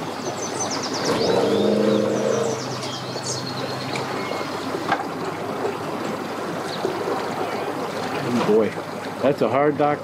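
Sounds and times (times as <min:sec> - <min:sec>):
birds chirping: 0:00.1 - 0:04.9
engine humming: 0:00.6 - 0:07.8.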